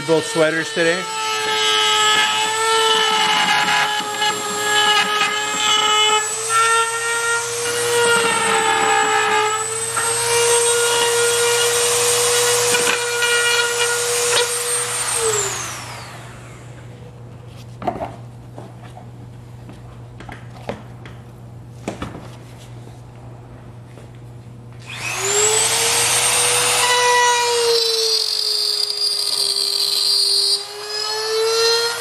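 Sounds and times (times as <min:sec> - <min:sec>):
rotary tool cutting plastic: 0:00.0 - 0:16.2.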